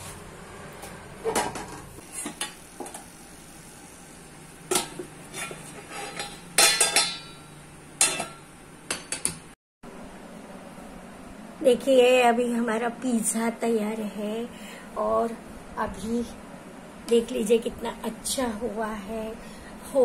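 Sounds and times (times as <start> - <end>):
faint steady hum: 0.2 - 20.0
steel plate and pan clanking: 4.7 - 8.4.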